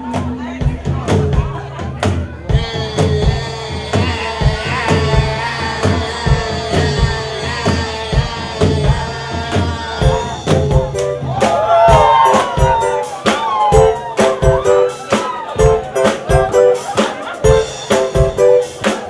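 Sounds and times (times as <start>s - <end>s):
bass line: 0.0s - 19.0s
drum beat: 0.0s - 19.0s
person singing: 0.0s - 19.0s
sustained chords: 13.8s - 18.8s.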